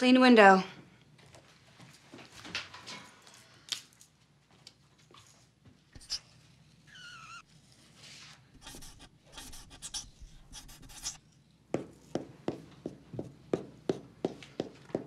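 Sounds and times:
marker drawing on whiteboard: 0:06.0 - 0:06.3, 0:08.6 - 0:11.2
marker squeak: 0:06.0 - 0:06.3, 0:06.9 - 0:07.5.

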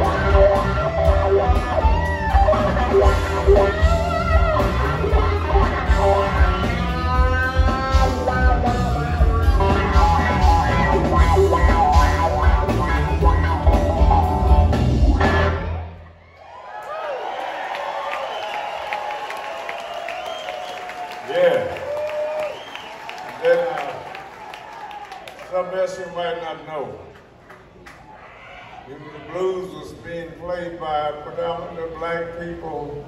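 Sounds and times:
electric guitar solo: 0:00.0 - 0:16.0
live blues band playing: 0:00.0 - 0:16.0.

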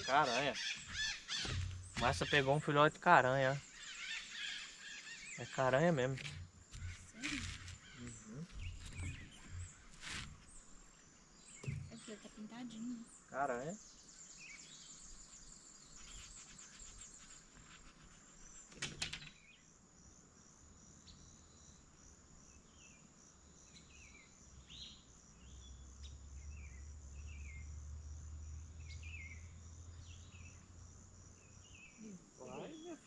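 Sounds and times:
birds chirping: 0:00.0 - 0:18.8, 0:28.4 - 0:30.8, 0:31.4 - 0:33.0
insect trill: 0:00.0 - 0:33.0
sharp knock: 0:00.9 - 0:02.4.

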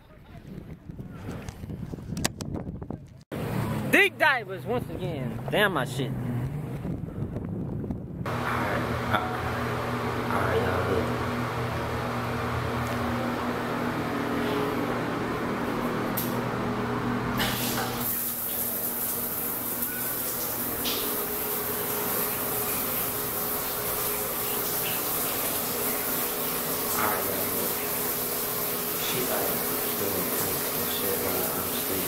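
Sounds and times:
steady low hum: 0:06.4 - 0:18.4
running water spraying: 0:17.4 - 0:32.0.

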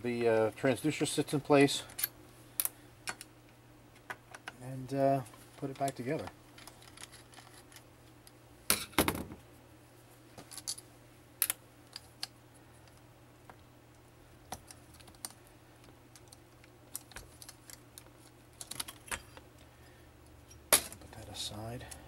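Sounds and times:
small metal parts clicking: 0:16.1 - 0:19.4.

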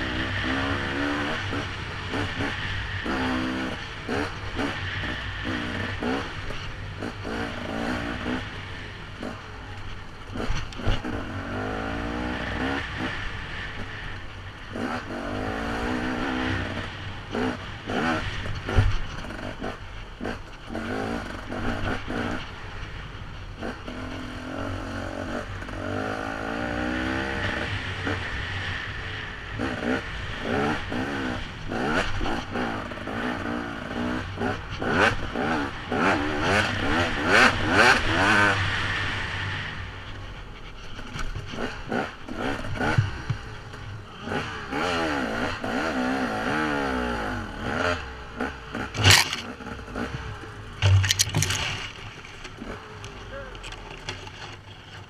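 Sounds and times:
dirt bike engine revving: 0:00.0 - 0:09.4, 0:10.3 - 0:13.3, 0:29.6 - 0:39.6, 0:44.2 - 0:55.0
knocks and clatter: 0:48.9 - 0:55.0.

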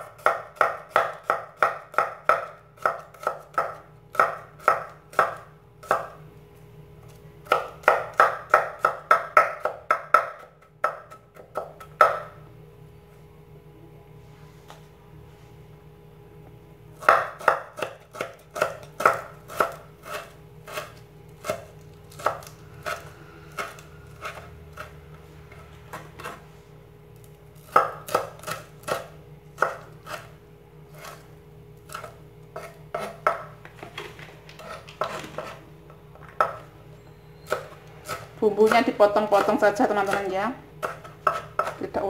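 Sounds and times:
cleaver chopping on wooden board: 0:00.2 - 0:06.1, 0:07.4 - 0:12.2, 0:17.0 - 0:24.4, 0:27.6 - 0:30.3, 0:40.8 - 0:41.8.

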